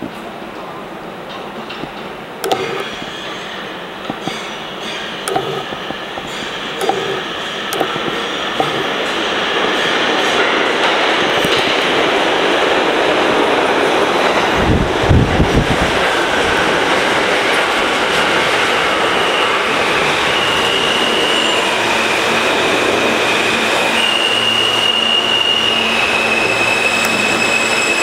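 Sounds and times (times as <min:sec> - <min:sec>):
train wheels squealing: 0:18.6 - 0:28.0.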